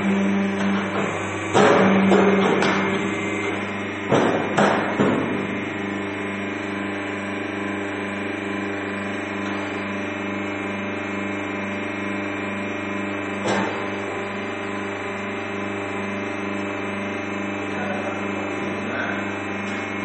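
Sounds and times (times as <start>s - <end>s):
machine humming: 0.0s - 20.0s.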